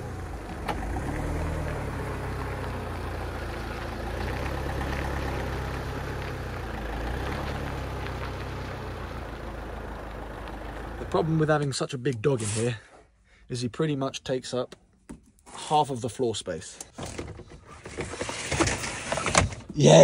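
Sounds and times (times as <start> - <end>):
diesel van engine at low revs: 0.0 - 11.7.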